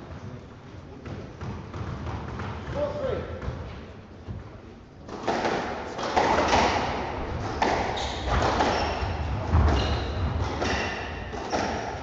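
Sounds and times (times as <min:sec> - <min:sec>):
squash ball hitting rackets and walls: 0:01.0 - 0:04.0, 0:05.0 - 0:12.0
shoe squeaks: 0:07.9 - 0:11.9.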